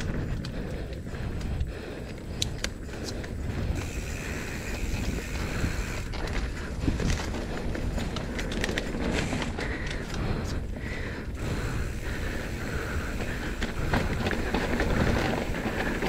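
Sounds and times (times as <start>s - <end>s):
bike rattling and clicking: 0.0s - 16.0s
wind on microphone: 0.0s - 16.0s
tyres rumbling on dirt: 11.8s - 16.0s.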